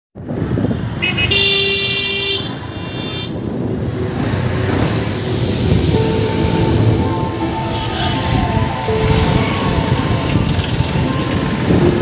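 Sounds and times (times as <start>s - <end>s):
road traffic rumble: 0.2s - 12.0s
vehicle horn honking: 1.0s - 3.4s.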